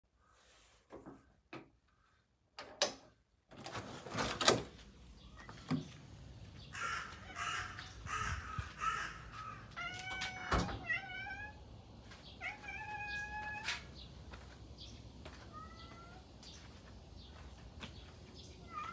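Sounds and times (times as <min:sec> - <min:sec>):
door opening with clunk: 0:02.6 - 0:04.8, 0:05.4 - 0:06.0, 0:10.0 - 0:11.0
crow cawing: 0:06.7 - 0:09.8
cat meowing: 0:06.8 - 0:11.6, 0:12.4 - 0:13.9, 0:15.4 - 0:16.2, 0:18.6 - 0:18.9.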